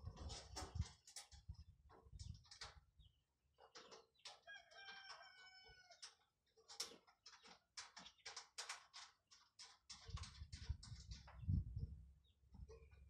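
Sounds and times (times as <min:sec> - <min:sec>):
faint chicken calling: 0:04.4 - 0:06.0.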